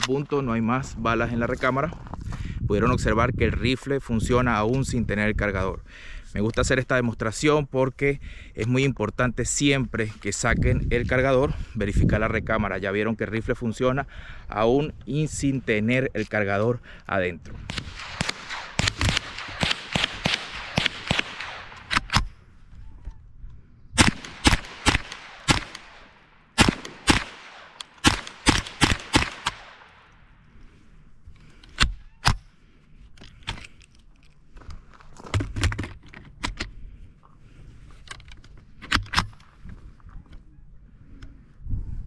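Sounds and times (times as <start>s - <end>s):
rifle shots echoing: 17.6s - 22.4s, 24.0s - 30.3s.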